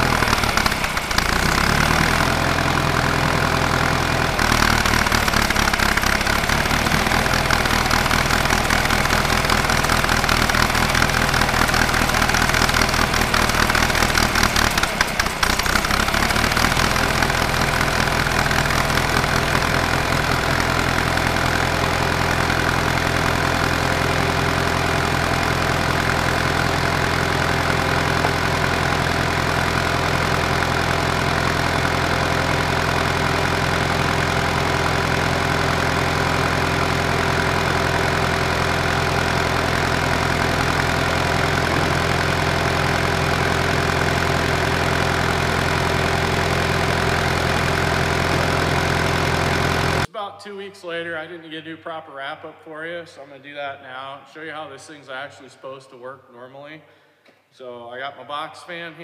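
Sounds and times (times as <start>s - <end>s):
small engine running steadily: 0.0s - 50.1s.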